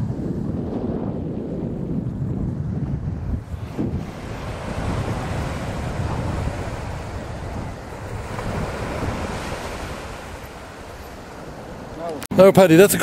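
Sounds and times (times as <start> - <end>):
wind buffeting the microphone: 0.0 - 12.2
small waves breaking on a beach: 3.4 - 12.3.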